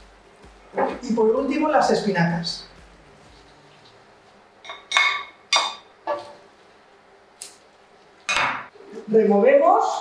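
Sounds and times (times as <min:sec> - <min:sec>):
bowl clinking against metal pot: 0:04.6 - 0:06.2.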